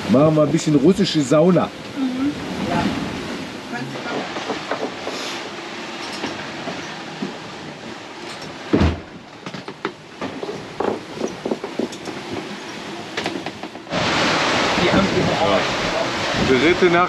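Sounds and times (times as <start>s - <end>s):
galley gear clattering and knocking: 8.3s - 13.9s
heavy thump: 8.7s - 9.1s.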